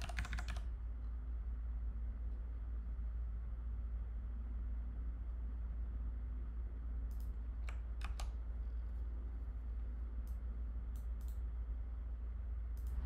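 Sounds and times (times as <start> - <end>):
computer keyboard keystrokes: 0.0 - 0.7, 7.1 - 8.4
steady low hum: 0.0 - 13.0.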